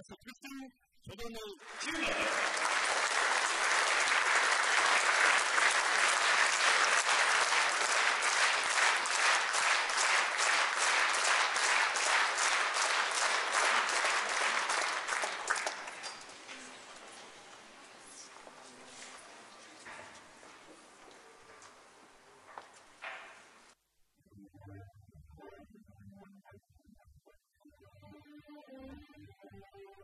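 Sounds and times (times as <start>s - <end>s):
large audience applauding: 1.6s - 16.6s.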